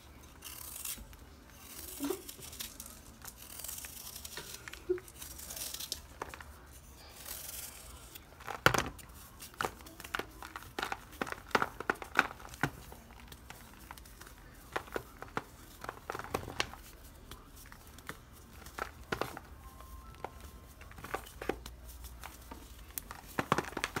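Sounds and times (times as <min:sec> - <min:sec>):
knife shaving dry block: 0:00.4 - 0:19.4
dry block crumbling by hand: 0:07.5 - 0:24.0.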